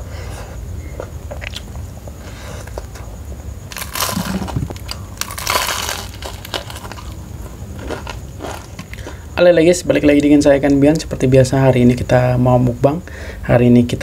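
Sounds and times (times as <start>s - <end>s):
crunching fried chicken: 3.7s - 9.3s.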